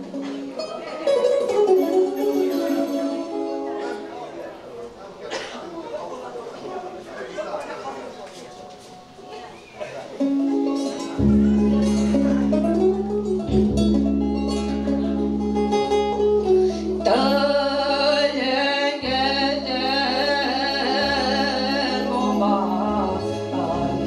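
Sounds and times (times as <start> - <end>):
guitar accompaniment: 0.0 - 4.3, 9.8 - 24.0
woman singing with vibrato: 17.0 - 24.0.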